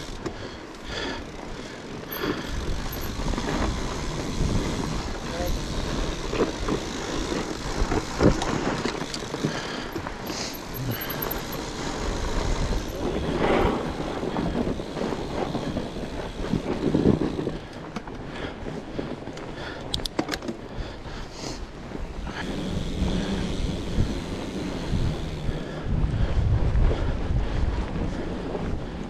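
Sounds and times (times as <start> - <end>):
bike tyres rolling on trail: 0.0 - 29.0
sharp clicks: 19.8 - 20.6.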